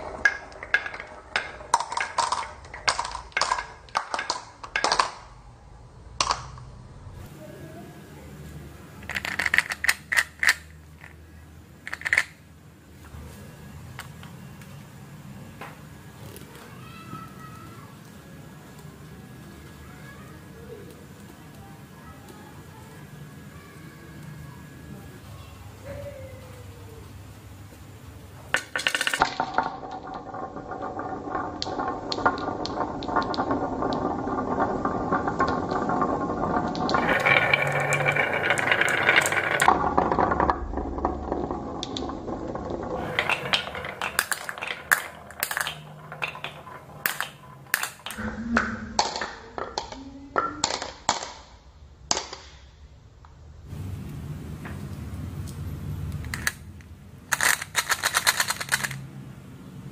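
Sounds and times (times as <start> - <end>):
marbles clinking into a teacup: 0.0 - 5.3, 9.0 - 11.2, 28.5 - 48.2, 57.3 - 59.1
marbles rolling on wooden tracks: 0.0 - 5.4, 9.0 - 12.4, 28.4 - 52.6, 54.8 - 59.1.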